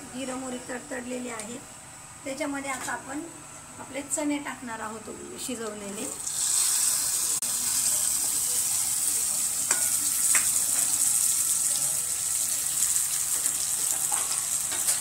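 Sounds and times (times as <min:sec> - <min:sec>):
chickpeas sizzling in oil: 0:05.6 - 0:15.0.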